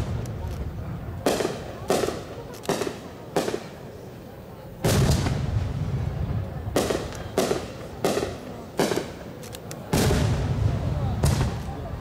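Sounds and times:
faint firework crackles: 0.0s - 12.0s
firework shells booming: 1.2s - 3.8s, 4.8s - 9.3s, 9.9s - 12.0s
sharp firework bangs: 1.2s - 3.8s, 4.8s - 9.2s, 9.9s - 12.0s.

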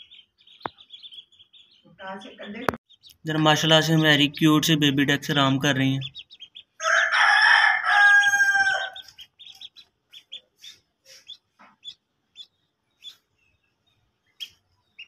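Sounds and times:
ducklings peeping: 0.0s - 15.0s
rooster crowing: 6.8s - 9.0s.

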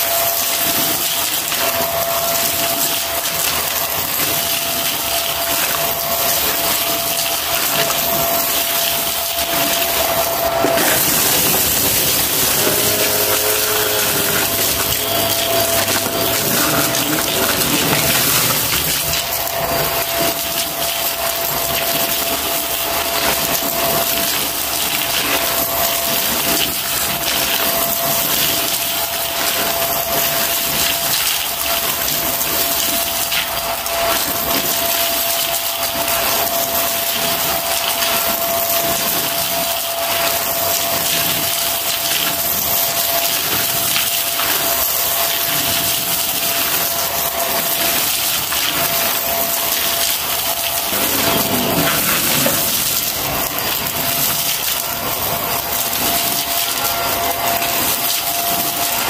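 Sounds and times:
vacuum cleaner whining: 9.4s - 19.5s, 50.4s - 53.8s.

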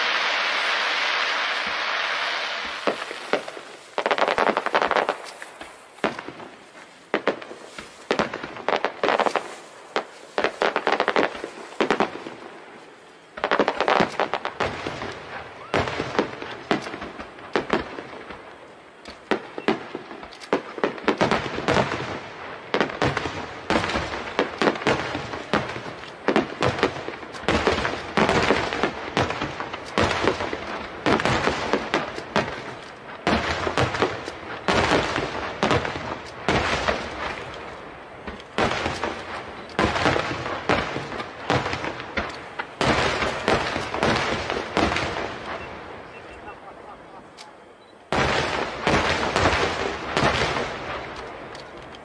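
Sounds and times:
firework shells bursting: 0.0s - 12.6s, 13.3s - 22.0s
firework hiss: 0.0s - 18.4s
firework crackling: 0.0s - 52.0s.

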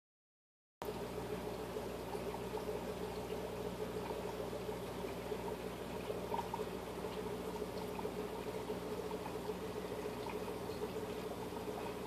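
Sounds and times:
water trickling: 0.8s - 12.0s.

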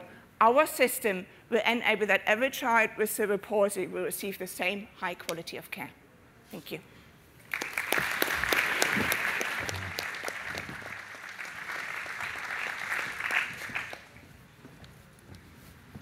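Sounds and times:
audience applauding: 7.4s - 14.2s.

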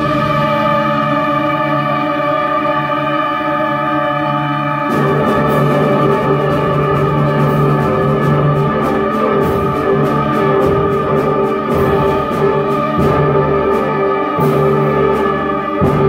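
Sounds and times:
concert band playing: 4.9s - 16.0s.

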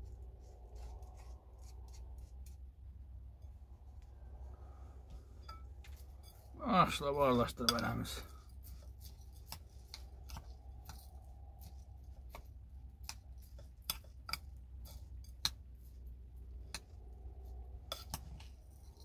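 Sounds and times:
low hum: 0.0s - 19.0s
fork scraping ceramic bowl: 7.6s - 15.4s, 17.9s - 19.0s.

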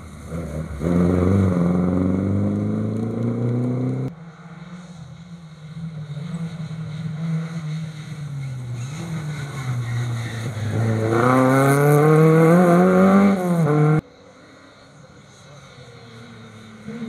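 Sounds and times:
rally car engine at high revs: 0.3s - 5.0s, 5.7s - 14.0s.

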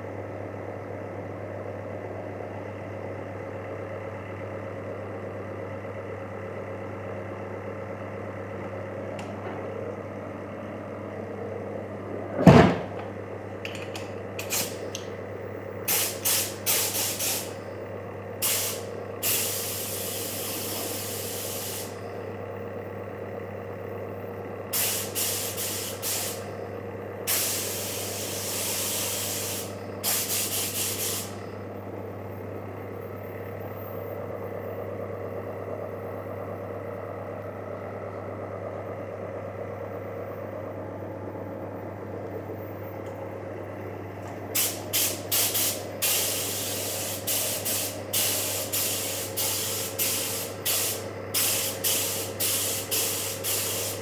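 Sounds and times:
steady low hum: 0.0s - 54.0s
spray gun hissing: 15.9s - 17.5s, 18.4s - 22.0s, 24.7s - 26.4s, 27.3s - 31.4s, 44.6s - 54.0s.

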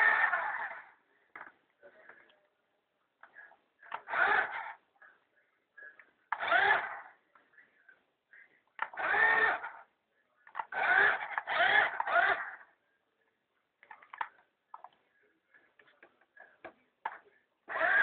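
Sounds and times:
toy car motor whirring: 0.0s - 1.0s, 3.8s - 4.8s, 6.3s - 7.2s, 8.8s - 12.7s, 17.1s - 18.0s.

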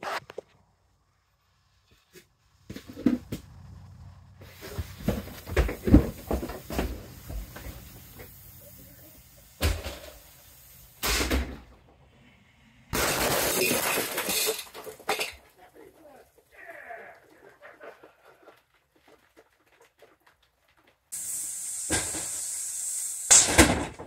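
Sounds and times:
firework fuse sputtering: 1.2s - 11.8s, 21.1s - 24.0s
loud firework blast: 21.2s - 24.0s.

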